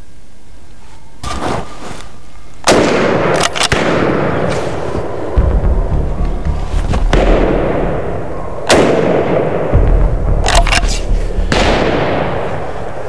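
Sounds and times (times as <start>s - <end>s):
rifle shots echoing: 2.6s - 5.4s, 7.1s - 13.0s.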